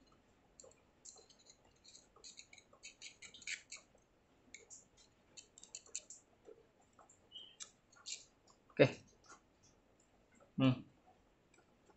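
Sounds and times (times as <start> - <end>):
screwdriver clicking on screw: 1.1 - 3.8.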